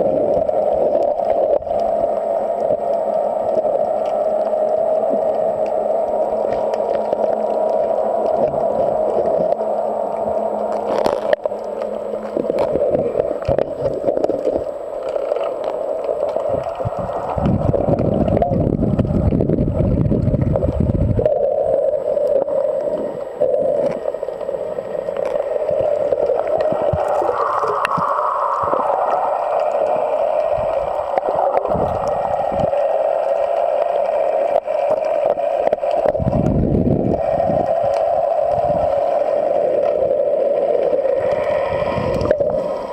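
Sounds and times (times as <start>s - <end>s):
underwater gurgling and sloshing: 0.0s - 42.9s
deep rumbling surges: 36.0s - 42.9s.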